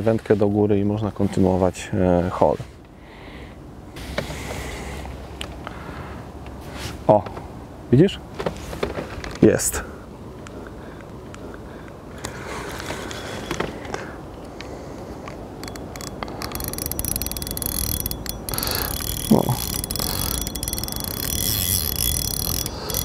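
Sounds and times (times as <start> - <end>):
fishing reel whirring and clicking: 15.5 - 23.0.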